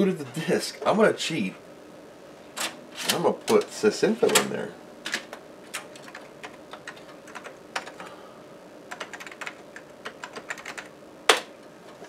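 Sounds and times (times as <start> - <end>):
typing on computer keyboard: 5.1 - 8.0, 8.9 - 11.5.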